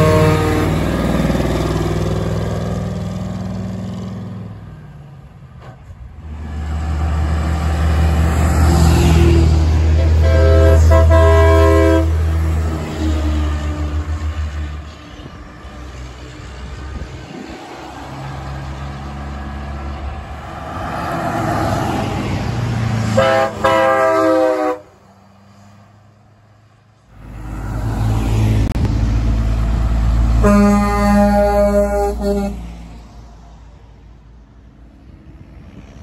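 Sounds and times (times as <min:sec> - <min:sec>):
truck air horn chord: 0:00.0 - 0:01.0, 0:10.0 - 0:12.2, 0:23.1 - 0:24.9, 0:30.4 - 0:32.7
diesel engine rumble: 0:00.0 - 0:36.0
traffic passing: 0:00.0 - 0:36.0.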